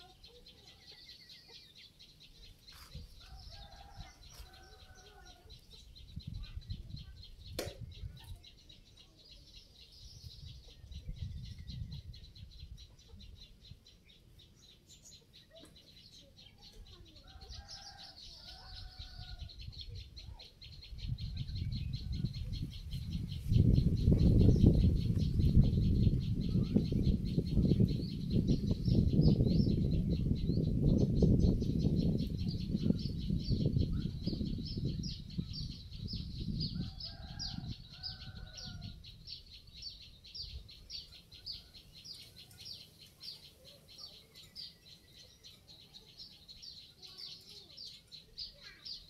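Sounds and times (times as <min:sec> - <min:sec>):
bird calls: 0:00.0 - 0:29.8.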